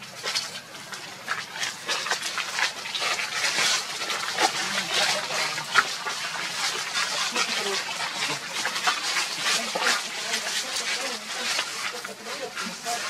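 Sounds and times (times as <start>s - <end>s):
monkeys rustling dry leaves: 0.0s - 13.0s.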